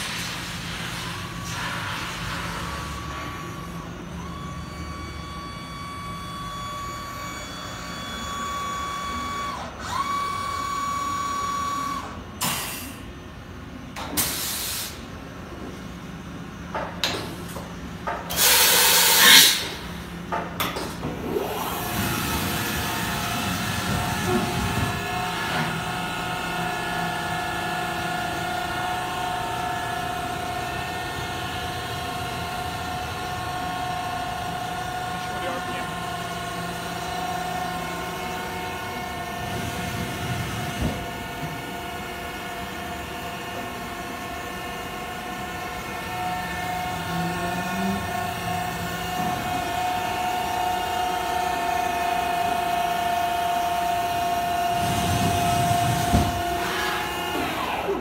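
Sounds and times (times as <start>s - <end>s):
machine whine: 0.3s - 12.2s, 21.0s - 58.0s
machine hum: 21.0s - 58.0s.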